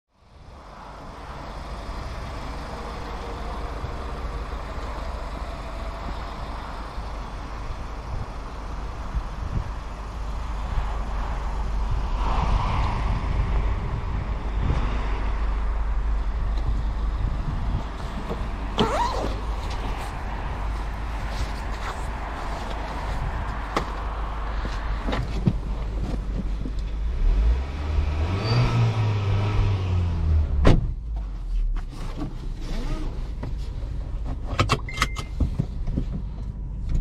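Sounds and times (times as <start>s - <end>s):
low vehicle rumble: 0.1s - 34.6s
brief high squeal: 18.8s - 19.4s.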